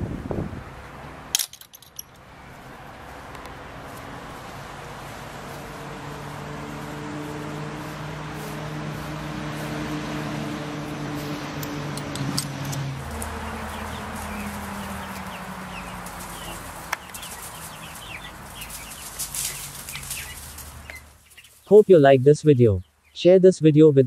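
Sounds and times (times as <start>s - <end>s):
chicks peeping: 3.9s - 11.5s, 13.0s - 21.9s
hen clucking: 13.0s - 21.8s.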